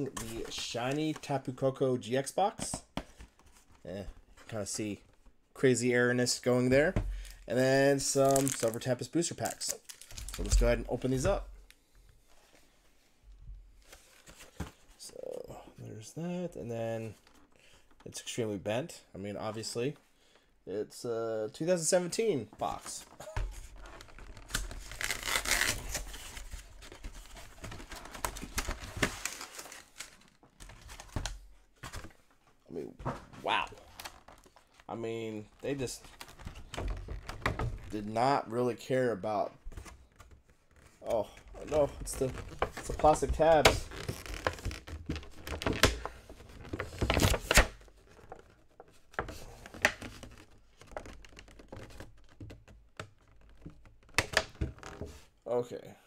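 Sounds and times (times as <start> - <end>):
plastic packaging clicking and crinkling: 7.1 - 11.8, 41.4 - 55.0.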